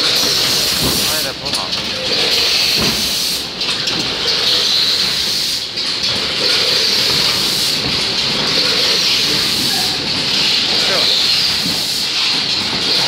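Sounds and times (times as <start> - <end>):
packing machine running with hiss: 0.0 - 13.0.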